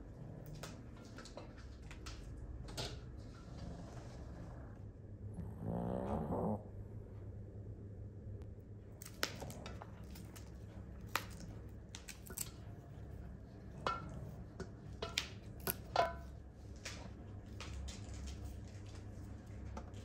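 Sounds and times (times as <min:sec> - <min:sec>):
bean pods snapping open: 0:09.0 - 0:12.6.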